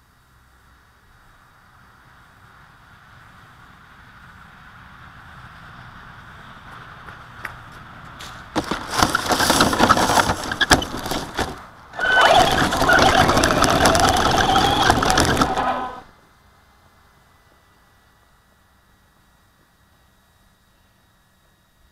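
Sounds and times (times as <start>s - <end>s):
tyres crunching on gravel: 6.6s - 16.1s
toy truck crackling through leaves: 8.2s - 16.1s.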